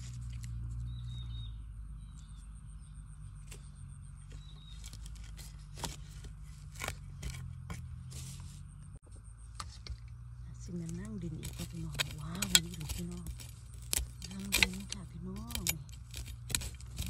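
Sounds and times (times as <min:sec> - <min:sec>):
digging scraping and rustling: 0:00.0 - 0:01.4, 0:02.0 - 0:17.0
faint bird chirps: 0:00.8 - 0:05.1
sharp digging strikes: 0:03.4 - 0:08.5, 0:10.7 - 0:17.0.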